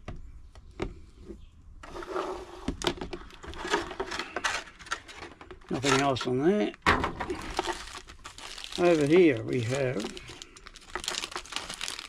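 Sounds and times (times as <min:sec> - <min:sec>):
plastic packaging crinkling: 0:07.1 - 0:12.0.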